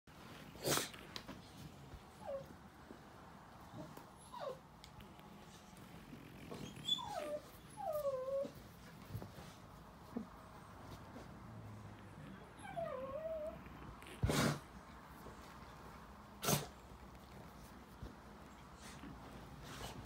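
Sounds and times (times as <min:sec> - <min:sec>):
dogs whining and yipping: 0:02.2 - 0:02.5, 0:03.7 - 0:04.6, 0:06.4 - 0:08.6, 0:12.3 - 0:13.9
dog growling: 0:12.1 - 0:14.8.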